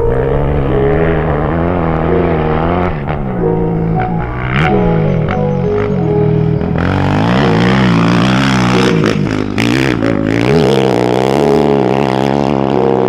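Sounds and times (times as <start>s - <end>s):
background music: 0.0s - 13.0s
dirt bike engine revving: 0.0s - 13.0s.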